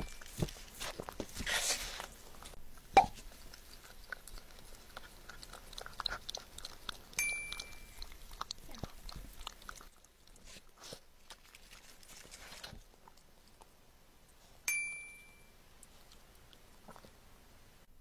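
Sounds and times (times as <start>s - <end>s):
puppy licking and eating: 0.0s - 14.6s, 15.6s - 17.4s
short ringing ding: 7.2s - 7.9s, 14.7s - 15.5s.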